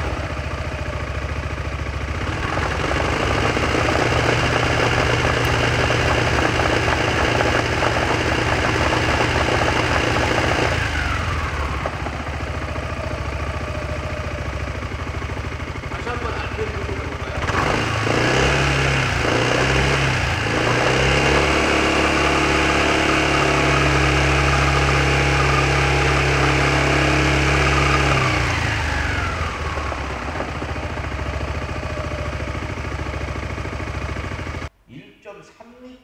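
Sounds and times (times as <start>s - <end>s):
scooter engine revving: 0.0s - 34.7s.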